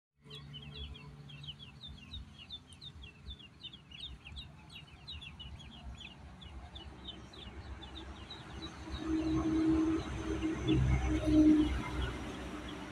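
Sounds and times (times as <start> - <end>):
ducklings peeping: 0.3 - 10.2.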